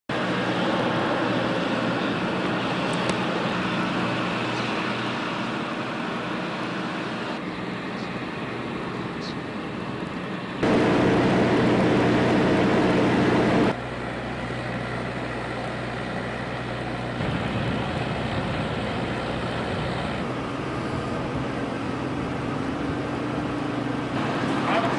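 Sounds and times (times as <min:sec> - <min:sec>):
steady low outdoor hum: 0:00.1 - 0:24.9.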